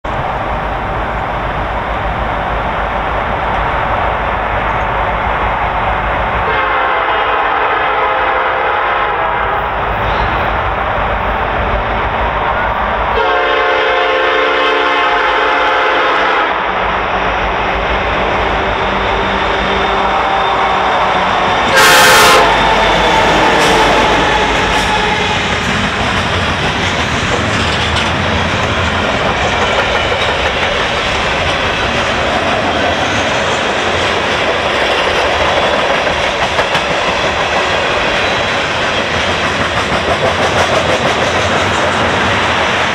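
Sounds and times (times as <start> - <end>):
approaching train noise: 0.0 - 42.9
locomotive air horn blast: 6.5 - 10.4, 13.2 - 16.8, 21.7 - 25.6.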